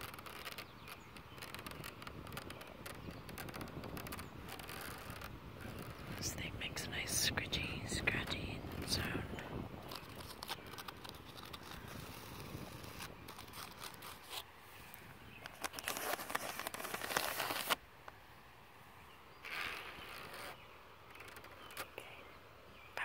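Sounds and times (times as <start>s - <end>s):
fingernails scratching on trampoline: 0.0s - 6.4s, 9.8s - 14.5s, 15.4s - 17.8s, 19.4s - 21.8s.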